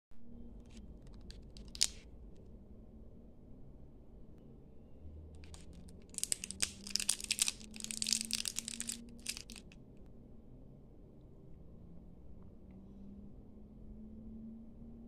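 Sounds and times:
plastic candy wrapper crinkling: 1.0 - 2.0, 5.4 - 9.8.

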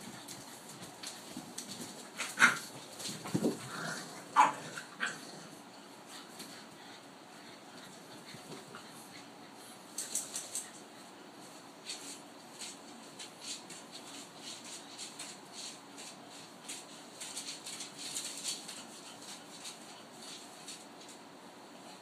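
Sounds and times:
puppy claws scratching on wood: 11.8 - 21.2.

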